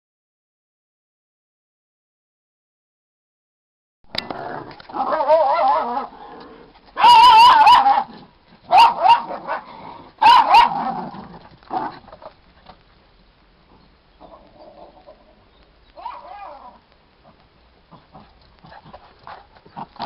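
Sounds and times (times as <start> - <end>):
small dogs barking: 4.9 - 6.1, 7.0 - 12.1, 16.0 - 16.8.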